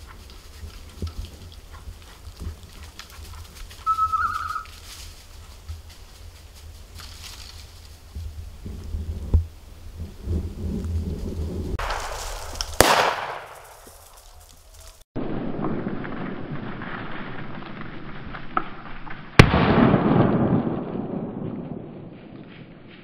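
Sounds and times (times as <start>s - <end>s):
wind noise on microphone: 0.0s - 12.8s
shotgun shots: 11.8s - 13.8s, 19.4s - 20.8s.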